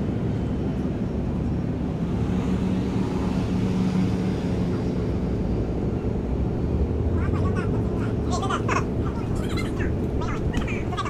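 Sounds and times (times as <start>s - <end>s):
ferry machinery rumble: 3.6s - 11.0s.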